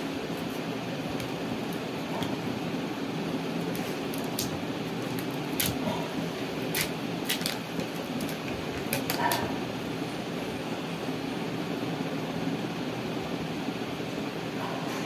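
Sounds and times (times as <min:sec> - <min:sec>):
steady background hum: 0:00.0 - 0:15.0
scissors snipping: 0:03.7 - 0:05.8, 0:06.7 - 0:07.6
foil pouch crinkling: 0:06.7 - 0:09.3.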